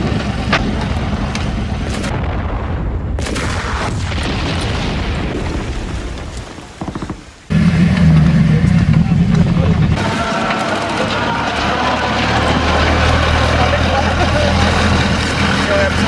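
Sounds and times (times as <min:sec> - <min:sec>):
gunshots: 0:00.0 - 0:06.2
explosion boom with rumble: 0:00.0 - 0:06.6.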